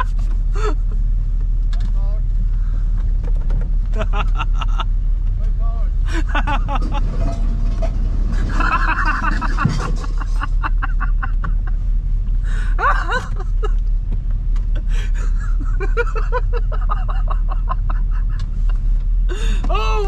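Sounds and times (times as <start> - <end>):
van engine humming: 0.0 - 20.0
man laughing hard: 4.0 - 4.9, 6.1 - 7.1, 8.4 - 11.8, 12.6 - 13.8, 15.0 - 18.4.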